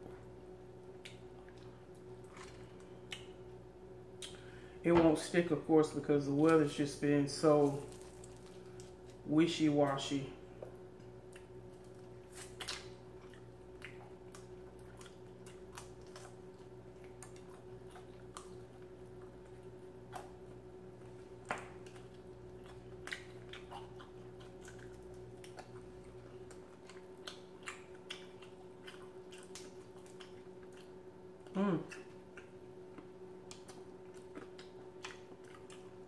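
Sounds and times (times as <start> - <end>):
faint hum: 0.0 - 36.0
wet chewing and lip smacks: 0.9 - 3.4, 11.0 - 36.0.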